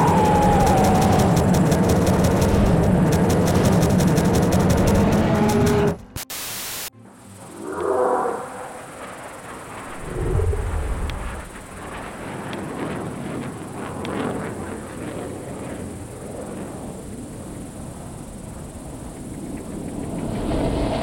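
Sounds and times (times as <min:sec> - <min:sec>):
low rumbling noise: 0:00.0 - 0:05.1, 0:07.4 - 0:12.4
jet aircraft approaching: 0:00.0 - 0:05.8, 0:07.2 - 0:21.0.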